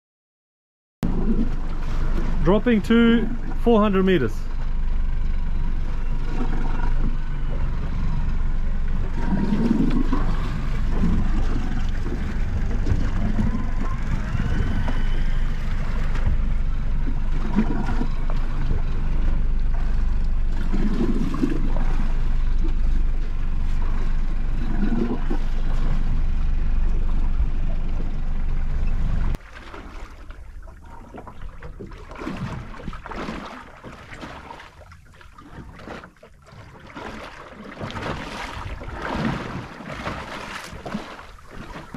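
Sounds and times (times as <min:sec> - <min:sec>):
water sloshing against hull: 0:01.0 - 0:41.9
wind rumbling on microphone: 0:05.4 - 0:29.4, 0:37.8 - 0:41.9.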